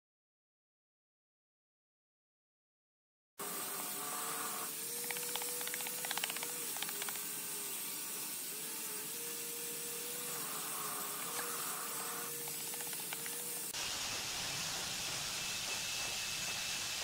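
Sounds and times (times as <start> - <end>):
steady hiss: 3.5 - 17.0.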